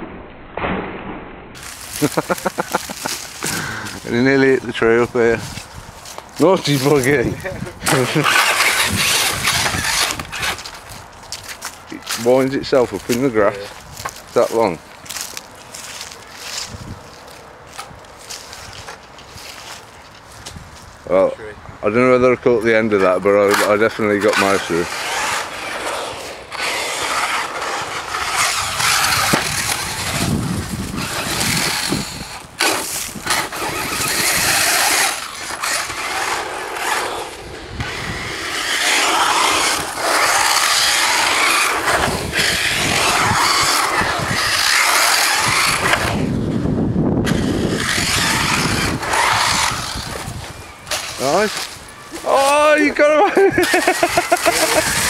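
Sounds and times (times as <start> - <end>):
tyres scrabbling on grit: 1.6 - 17.3, 22.6 - 46.4, 47.2 - 55.0
electric motor whine: 24.3 - 46.4, 47.2 - 51.7.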